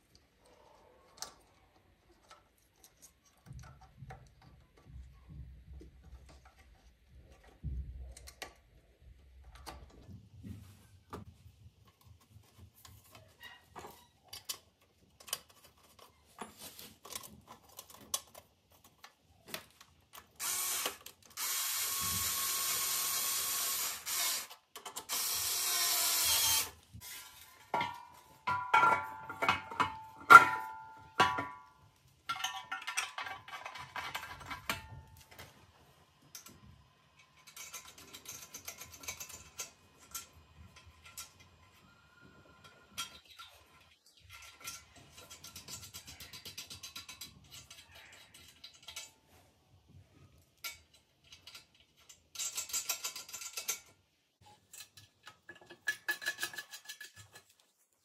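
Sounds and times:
cordless drill running: 20.4 - 24.5, 25.1 - 26.8
tools clinking and rattling: 27.3 - 41.7, 42.6 - 49.4, 50.4 - 57.7.

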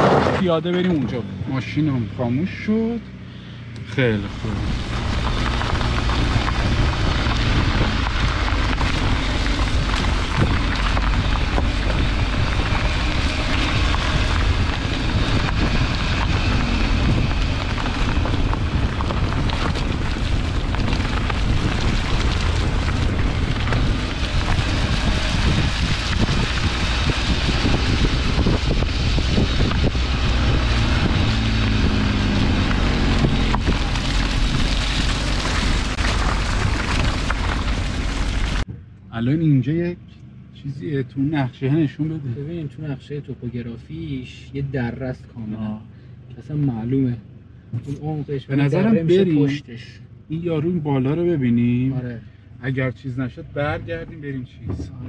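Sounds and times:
tyres rolling over gravel: 0.0 - 2.0, 4.0 - 38.7
wind buffeting microphone: 4.3 - 38.7.

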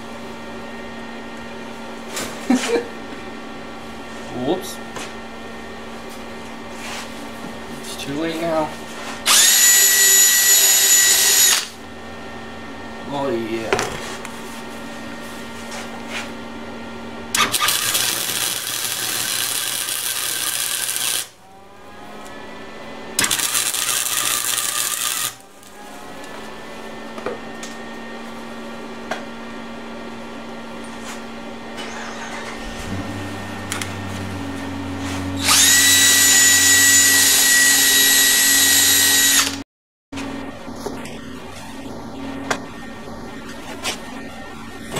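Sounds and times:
drill wire brush whining on metal: 9.3 - 11.8, 17.4 - 21.4, 23.2 - 25.7, 31.8 - 39.6
welder arc crackling: 17.4 - 21.4, 23.2 - 25.8.

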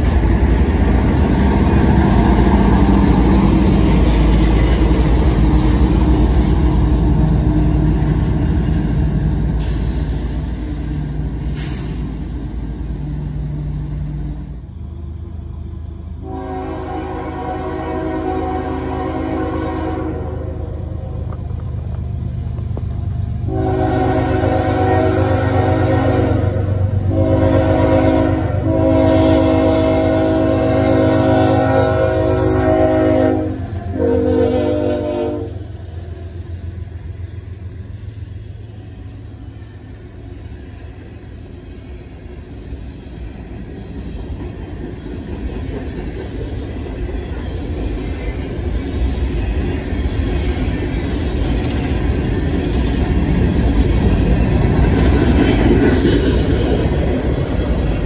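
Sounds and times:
train cars rumbling on rails: 0.0 - 58.0
locomotive air horn blasts: 16.2 - 20.7, 23.5 - 35.7.

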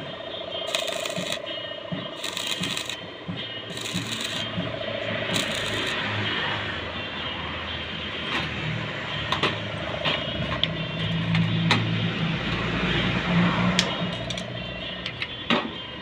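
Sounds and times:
welding arc crackling and hissing: 0.7 - 1.4, 2.2 - 3.0, 3.7 - 4.5, 5.3 - 6.0.

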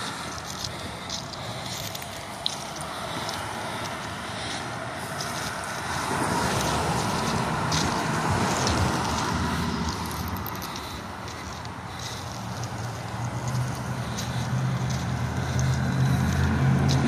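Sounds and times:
diesel locomotives idling: 0.0 - 17.0
engine with shifting pitch: 0.0 - 17.0.

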